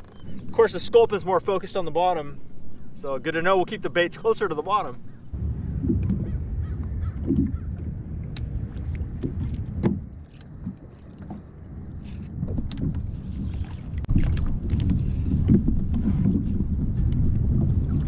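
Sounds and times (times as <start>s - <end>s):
wind buffeting microphone: 5.0s - 18.0s
water slapping kayak hull: 5.4s - 18.0s.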